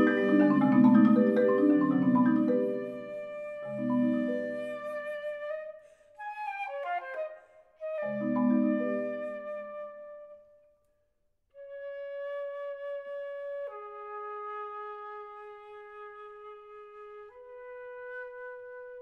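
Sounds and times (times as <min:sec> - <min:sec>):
marimba chord: 0:00.0 - 0:04.8
flute playing held notes: 0:00.0 - 0:10.4.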